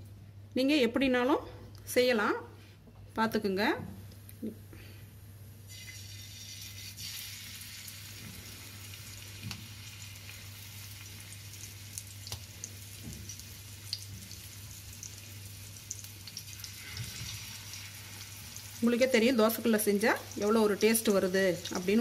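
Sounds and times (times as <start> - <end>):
fish sizzling in oil: 5.7 - 22.0.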